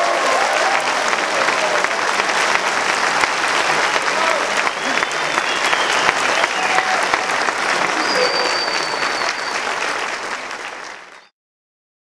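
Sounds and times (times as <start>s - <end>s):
audience applauding: 0.0s - 11.3s
high whistle from crowd: 4.6s - 7.1s, 7.8s - 10.0s, 10.9s - 11.3s.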